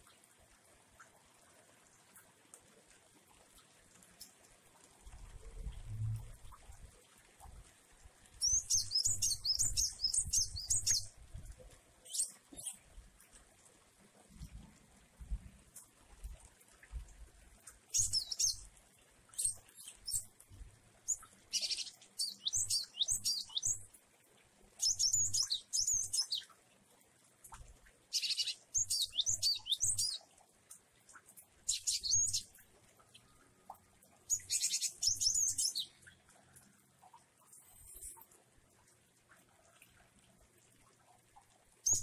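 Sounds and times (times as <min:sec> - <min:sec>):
bird singing high chirps: 0:08.4 - 0:11.1, 0:21.1 - 0:23.8, 0:28.1 - 0:30.2, 0:34.3 - 0:36.0.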